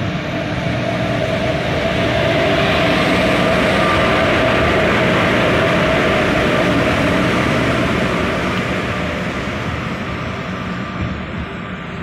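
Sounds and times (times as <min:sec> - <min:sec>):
electric locomotive motor hum: 0:00.0 - 0:12.0
wheels rumbling on rails: 0:00.0 - 0:12.0.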